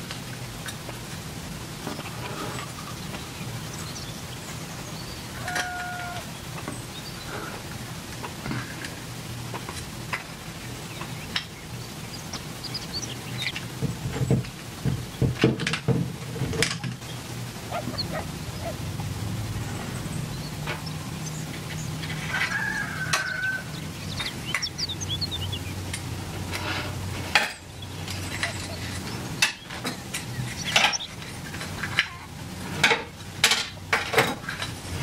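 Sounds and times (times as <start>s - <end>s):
low steady hum: 0.0s - 35.0s
chicken clucking: 10.9s - 13.6s, 17.7s - 19.2s, 20.3s - 25.7s.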